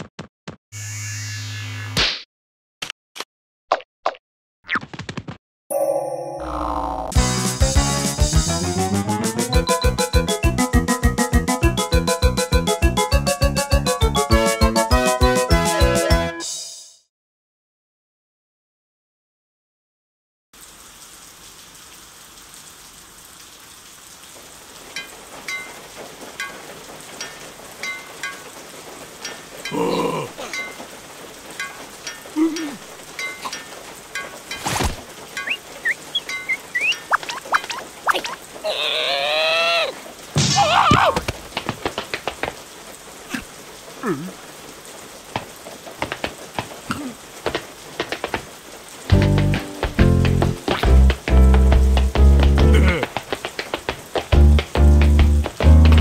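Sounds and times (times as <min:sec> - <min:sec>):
steady rain: 0:07.2 - 0:16.2, 0:20.6 - 0:56.0
plinking water drips: 0:24.4 - 0:38.5
cartoon rain hiss: 0:35.5 - 0:41.2
cartoon creature chattering cry: 0:38.6 - 0:40.0.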